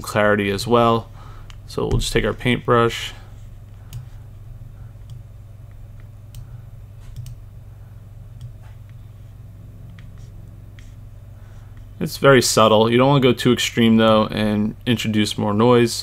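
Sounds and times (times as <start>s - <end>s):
steady low hum: 0.0s - 16.0s
computer mouse clicks: 5.0s - 7.4s.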